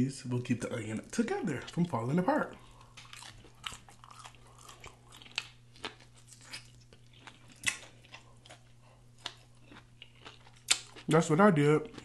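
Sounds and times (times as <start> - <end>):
person chewing and lip smacking: 1.5 - 12.0
crisp bite: 2.8 - 8.6, 9.2 - 11.1.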